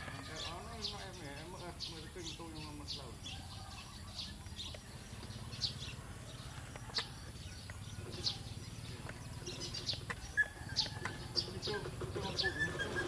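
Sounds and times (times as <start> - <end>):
birds chirping: 0.0 - 13.0
low outdoor rumble: 0.0 - 13.0.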